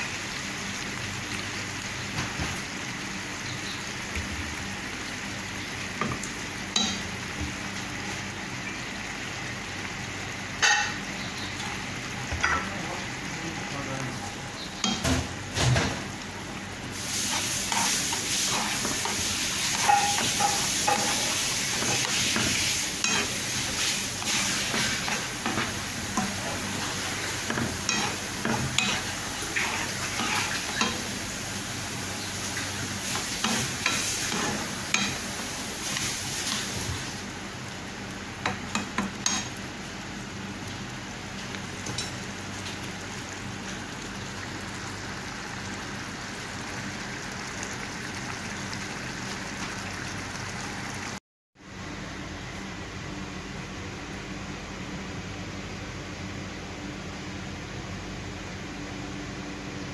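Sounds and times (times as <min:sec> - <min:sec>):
gravy sizzling in frying pan: 0:00.0 - 0:51.2
metal spoon scraping pan: 0:17.3 - 0:23.4, 0:27.5 - 0:31.0.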